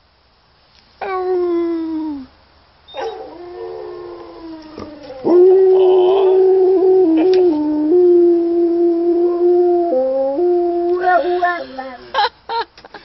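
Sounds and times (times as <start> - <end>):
dog howling: 2.9 - 11.7
recorded dog howl: 2.9 - 11.8.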